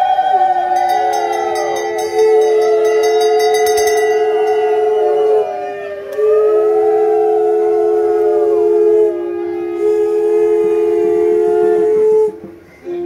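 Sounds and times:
conch shells blown: 0.0s - 13.0s
brass hand bell ringing rapidly: 0.7s - 5.0s.

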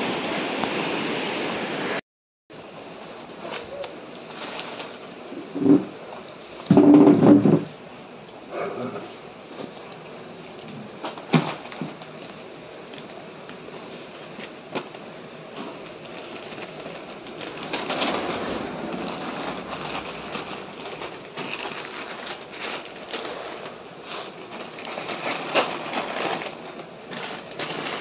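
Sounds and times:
newspaper crinkling: 9.5s - 28.0s
plastic packets crackling: 9.8s - 28.0s.

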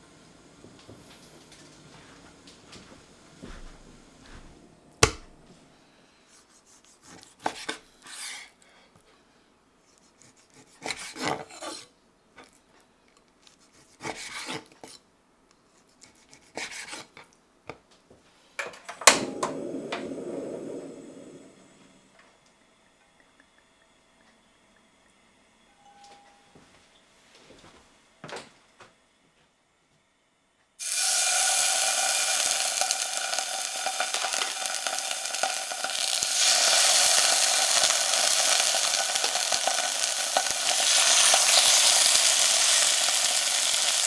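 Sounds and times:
gas stove click: 5.0s - 5.3s, 18.6s - 20.1s
sharp knock: 5.0s - 5.3s
gas stove burner rushing: 18.7s - 22.4s, 30.8s - 44.0s.

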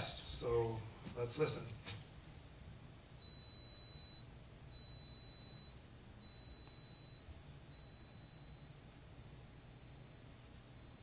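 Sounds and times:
pure tone beeps: 3.2s - 11.0s.

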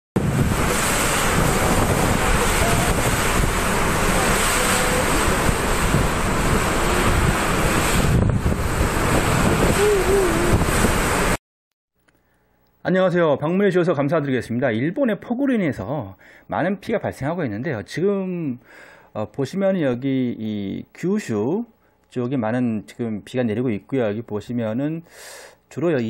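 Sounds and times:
driving rain: 0.2s - 11.4s
gusting wind buffeting microphone: 0.2s - 11.4s.

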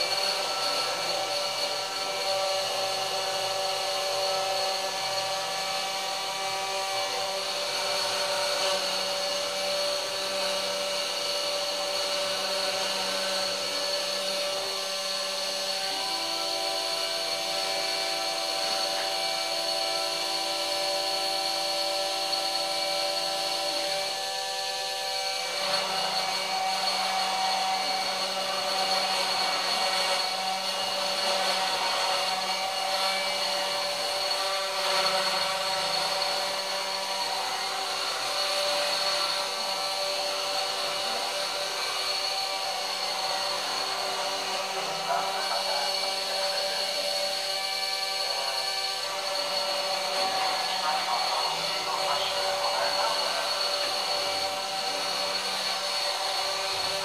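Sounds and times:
router spindle motor spinning: 0.0s - 57.0s
stepper motors whining: 0.0s - 57.0s.

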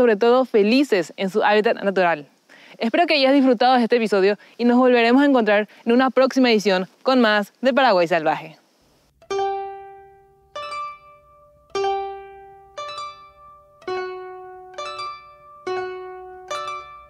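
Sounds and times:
plucked string melody: 9.2s - 17.0s.

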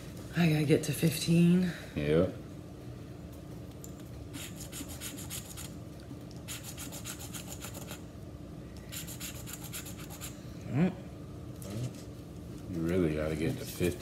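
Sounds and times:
coin scratching lottery ticket: 4.4s - 5.7s, 6.5s - 8.0s, 8.9s - 10.4s.

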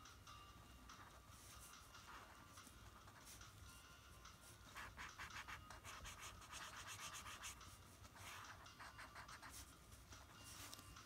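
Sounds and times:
marker scribbling on paper: 4.7s - 9.7s.

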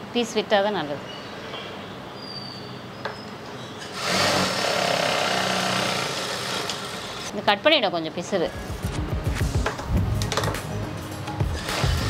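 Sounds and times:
sewing machine stitching: 3.9s - 7.3s.

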